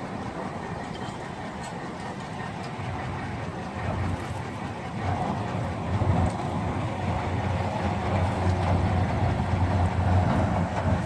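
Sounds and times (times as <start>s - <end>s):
crane engine rumbling: 0.0s - 11.0s.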